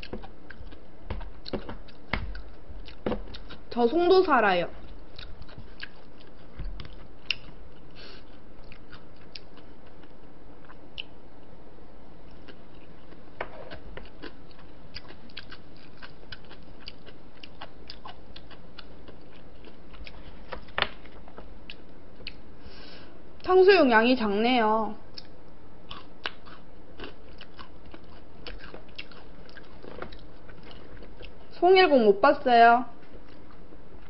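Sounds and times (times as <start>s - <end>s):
person chewing and biting: 0.0s - 3.7s, 4.8s - 11.2s, 12.2s - 20.7s, 25.1s - 31.4s.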